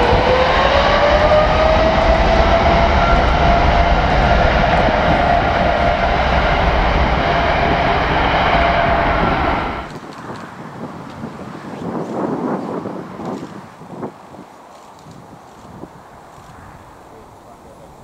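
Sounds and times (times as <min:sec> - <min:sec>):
jet engines roaring at takeoff: 0:00.0 - 0:13.6.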